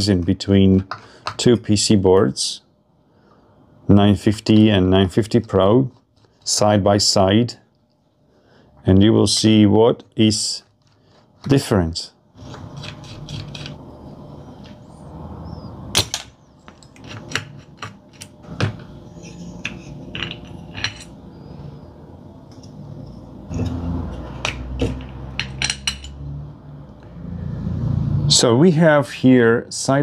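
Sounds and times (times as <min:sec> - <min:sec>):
clinks and scrapes of metal parts: 0:16.7 - 0:18.4, 0:19.1 - 0:21.2, 0:23.5 - 0:26.2.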